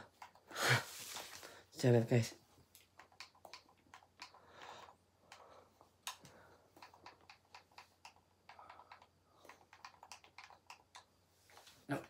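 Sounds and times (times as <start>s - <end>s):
keyboard typing clicks: 2.8s - 11.2s.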